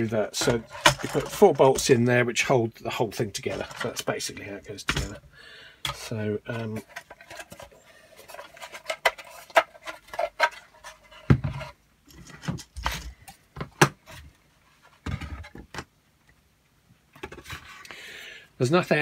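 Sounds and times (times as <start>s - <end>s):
plastic parts clicking and knocking: 0.0s - 2.1s, 3.3s - 14.2s, 14.9s - 15.9s, 17.1s - 17.7s.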